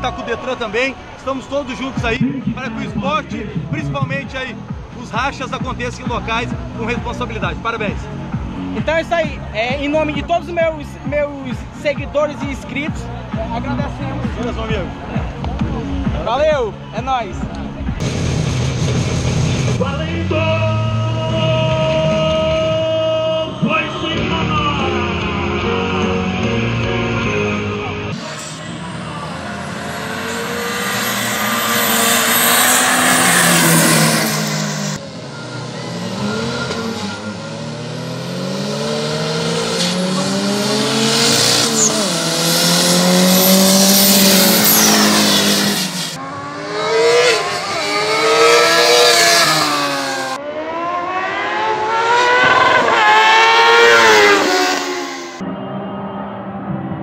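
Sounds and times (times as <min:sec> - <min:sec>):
drag racing engines accelerating: 0:25.2 - 0:56.9
motorcycles revving: 0:28.1 - 0:55.4.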